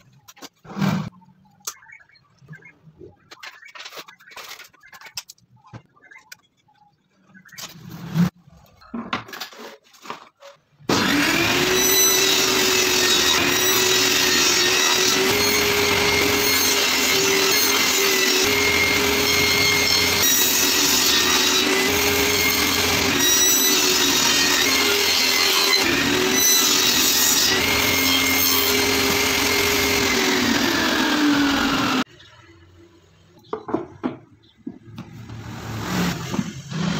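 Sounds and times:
saw blade cutting board: 0:10.9 - 0:32.1, 0:35.2 - 0:36.9
table saw running: 0:10.9 - 0:32.1.

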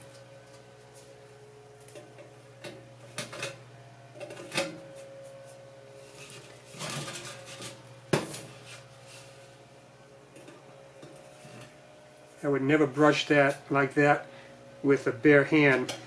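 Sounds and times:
sheet metal pipe scraping: 0:04.2 - 0:09.6, 0:10.4 - 0:11.8.

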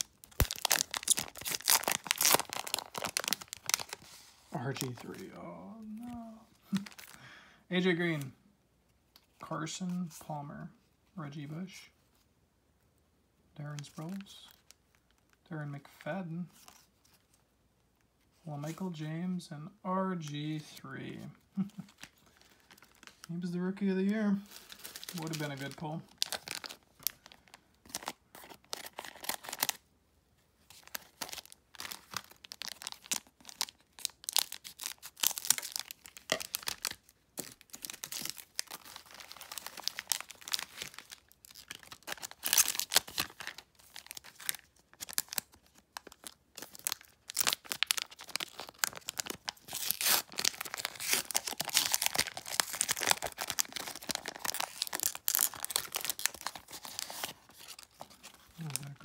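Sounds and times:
plastic wrappers crinkling and tearing: 0:00.0 - 0:07.3, 0:21.6 - 0:23.3, 0:24.3 - 0:29.8, 0:30.6 - 0:59.0.

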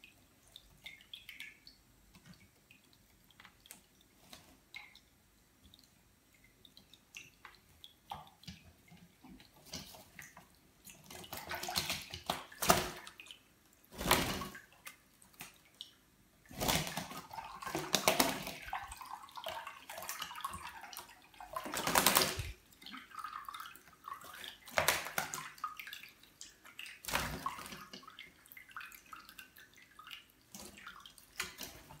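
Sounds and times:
water dripping: 0:00.0 - 0:32.0
birds splashing in water: 0:11.0 - 0:15.8, 0:16.4 - 0:32.0.

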